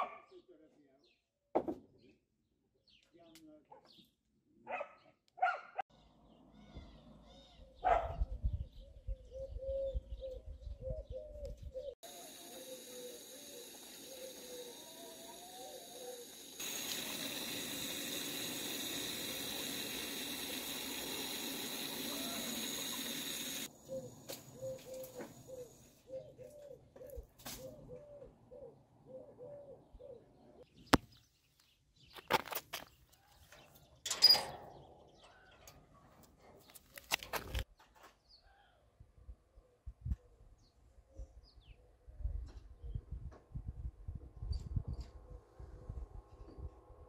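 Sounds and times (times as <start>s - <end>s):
doves cooing: 9.2s - 30.4s.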